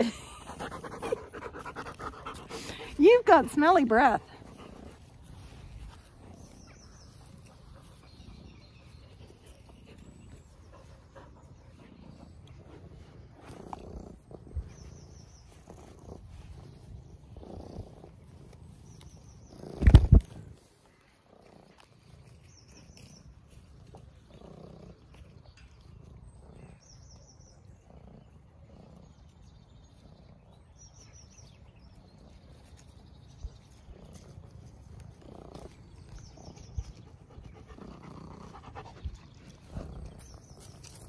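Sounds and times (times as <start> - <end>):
cat purring: 0.0 - 20.5, 23.5 - 25.4, 33.9 - 41.0.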